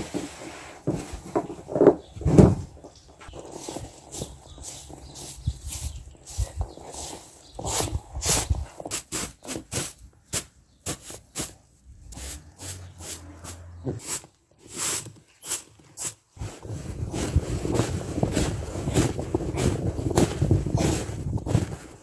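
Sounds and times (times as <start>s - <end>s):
broom sweeping snow: 12.2s - 21.8s
rug rustling on snow: 16.4s - 22.0s.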